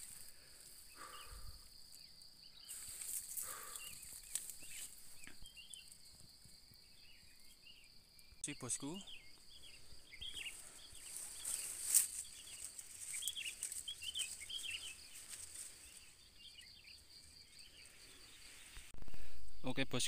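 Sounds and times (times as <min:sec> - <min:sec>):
bird chirps: 0:00.9 - 0:18.9
sharp rustle: 0:11.0 - 0:15.9.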